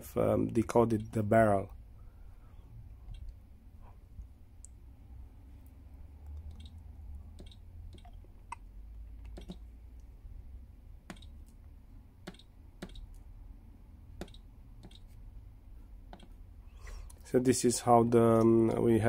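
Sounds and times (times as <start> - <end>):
low steady hum: 0.0 - 19.0
pen tapping touchscreen: 9.3 - 9.6, 11.1 - 11.3, 12.2 - 13.1, 14.2 - 15.1.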